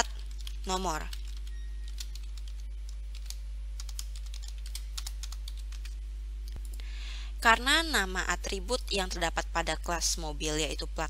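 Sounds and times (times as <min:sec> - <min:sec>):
keyboard typing: 0:00.0 - 0:06.0
low electrical hum: 0:00.0 - 0:11.0.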